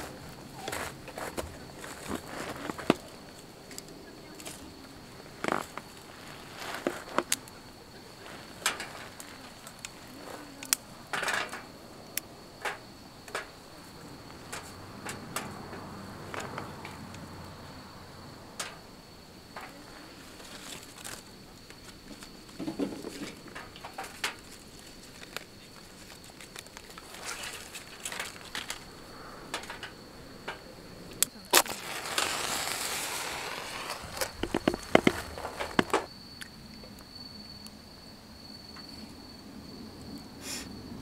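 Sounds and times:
crickets trilling: 0:00.0 - 0:41.0
match striking and flaring: 0:31.4 - 0:36.1
firewood and camp gear knocking: 0:33.8 - 0:36.1.

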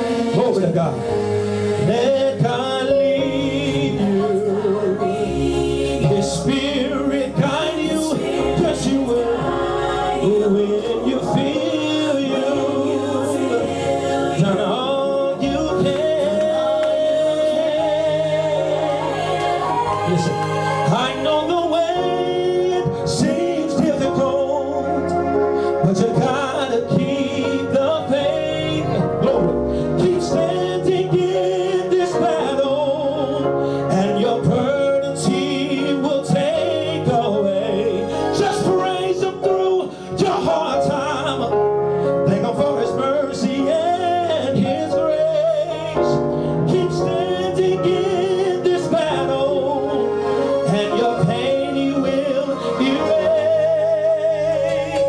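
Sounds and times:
backing music of held chords: 0:00.0 - 0:55.0
man singing gospel into microphone: 0:00.0 - 0:55.0.

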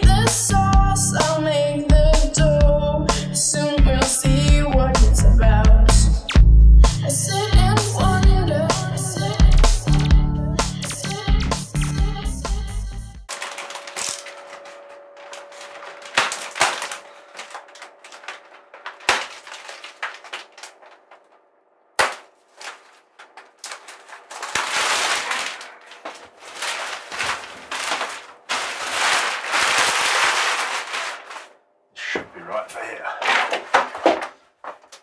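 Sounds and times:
knife slitting plastic wrap: 0:13.3 - 0:21.3, 0:22.0 - 0:31.6
plastic crackling and rustling: 0:13.3 - 0:31.6, 0:33.2 - 0:35.0.

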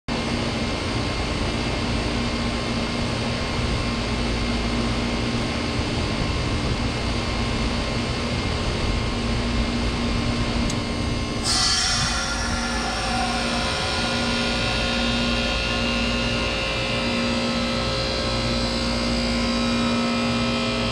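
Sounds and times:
fan noise: 0:00.1 - 0:20.9
heat pump compressor hum: 0:00.1 - 0:20.9
loud hiss of rushing refrigerant: 0:11.4 - 0:20.9.

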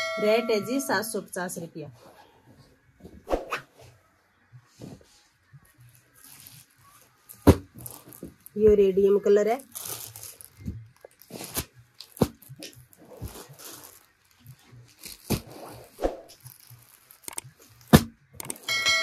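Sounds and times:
plastic bags crinkling: 0:06.1 - 0:18.0.

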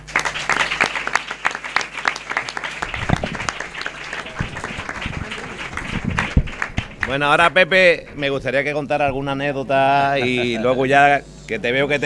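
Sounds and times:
people applauding: 0:00.0 - 0:08.5
low thumps: 0:02.8 - 0:09.5.

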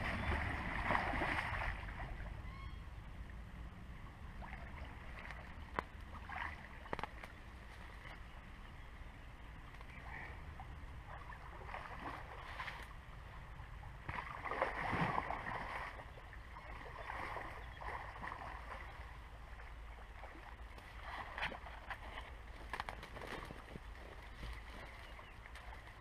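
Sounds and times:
water swirling and splashing: 0:00.0 - 0:02.5, 0:04.3 - 0:08.2, 0:11.0 - 0:13.0, 0:14.0 - 0:26.0.

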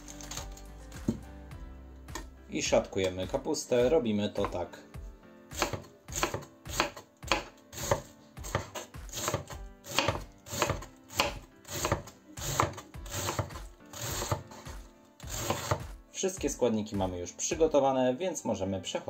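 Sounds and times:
knife cutting cabbage on board: 0:05.5 - 0:16.0.

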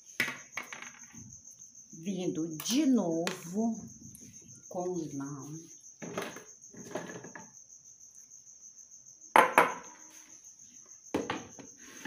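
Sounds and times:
kitchenware rustling and clattering: 0:06.0 - 0:07.5.

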